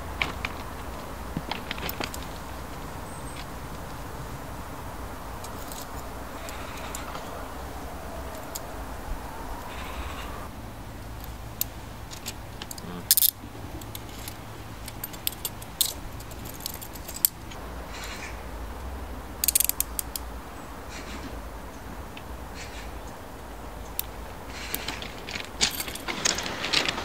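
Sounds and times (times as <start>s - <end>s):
metal handcuffs clicking: 5.4s - 7.1s, 11.6s - 17.6s, 19.4s - 20.2s, 24.7s - 27.0s.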